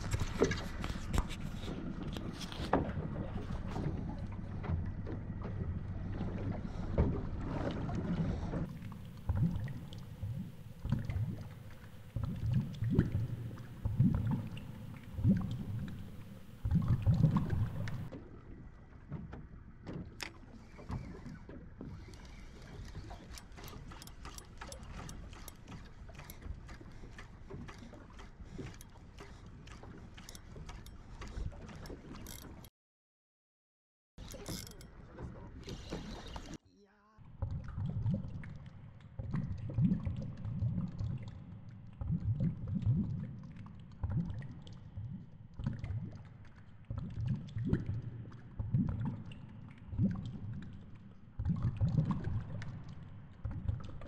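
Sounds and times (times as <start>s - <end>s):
muffled underwater rush: 0.0s - 19.0s
boat engine hum: 0.0s - 32.7s
low underwater thumps: 2.8s - 18.1s
fishing reel clicking: 32.3s - 32.7s, 34.2s - 34.9s.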